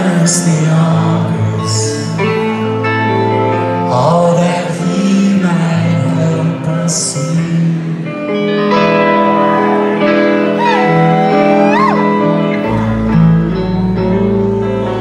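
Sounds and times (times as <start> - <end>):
man singing: 0.0 - 8.6
rock band playing live: 0.0 - 15.0.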